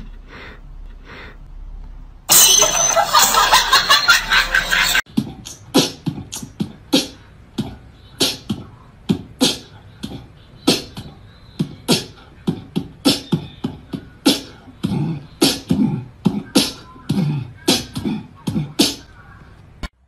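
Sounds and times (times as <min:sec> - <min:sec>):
beatboxing percussive beat: 0:05.1 - 0:19.1.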